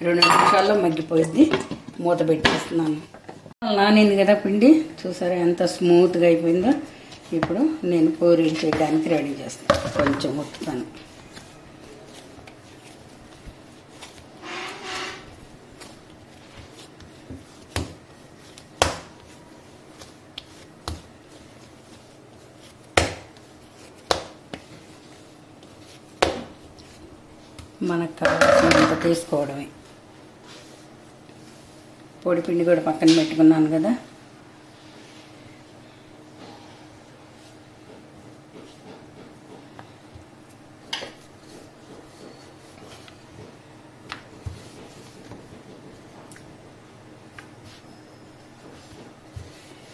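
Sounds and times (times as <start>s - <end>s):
kitchen knocks and taps: 9.7s - 10.3s.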